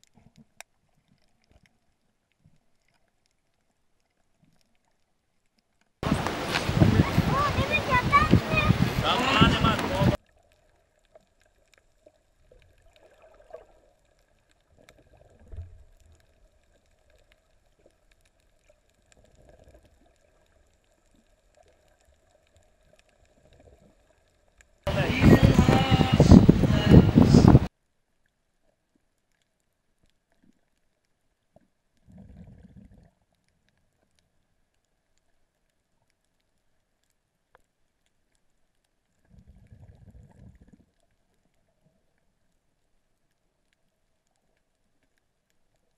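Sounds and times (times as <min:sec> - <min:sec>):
muffled rumble of water moving: 0:00.0 - 0:45.9
soft low underwater gurgles: 0:00.0 - 0:45.9
muffled underwater sound: 0:06.0 - 0:11.2, 0:24.9 - 0:27.7.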